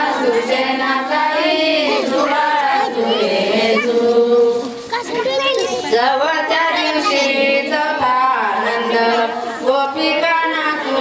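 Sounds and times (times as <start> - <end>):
voices singing a devotional song: 0.0 - 11.0.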